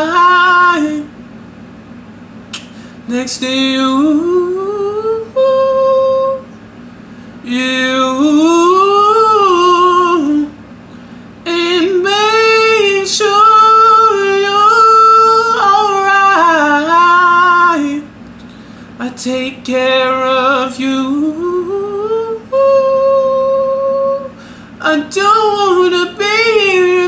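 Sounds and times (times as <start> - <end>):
person singing unaccompanied: 0.0 - 1.1, 3.1 - 6.5, 7.4 - 10.6, 11.4 - 18.1, 19.0 - 27.0.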